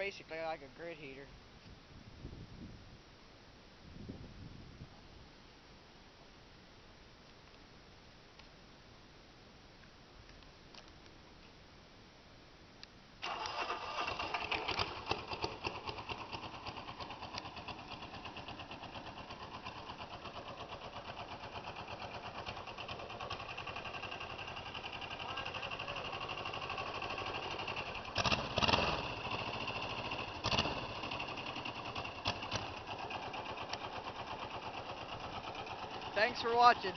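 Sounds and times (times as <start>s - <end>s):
diesel engine starting and idling: 13.2s - 36.9s.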